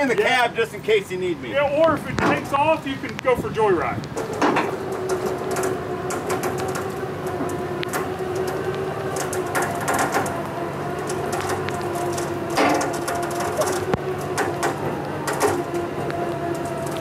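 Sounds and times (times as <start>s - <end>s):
electric winch humming: 0.0s - 17.0s
clicks and knocks from load: 11.0s - 15.7s.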